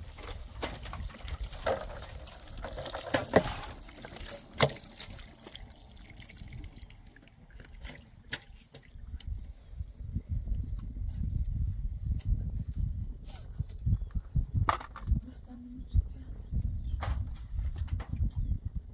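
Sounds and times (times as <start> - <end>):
water trickling over vegetables: 0.0 - 8.8.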